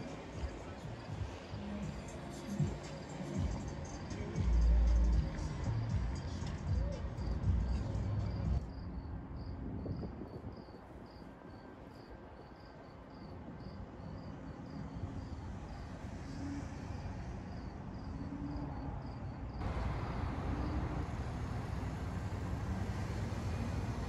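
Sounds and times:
crickets chirping: 0.0s - 24.0s
ship engine rumbling: 19.6s - 24.0s.

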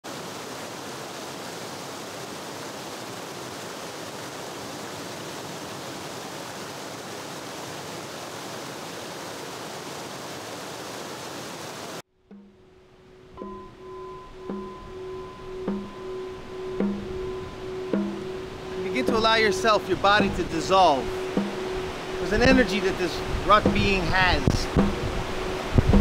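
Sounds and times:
steady rushing noise: 14.8s - 26.0s.

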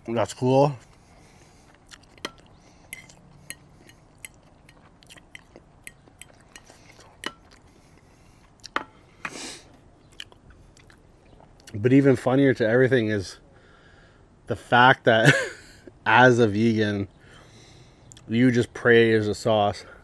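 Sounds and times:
quiet chewing: 0.8s - 11.8s, 17.5s - 18.3s
fork against plate: 2.1s - 4.4s
mouth clicks: 10.0s - 11.0s.

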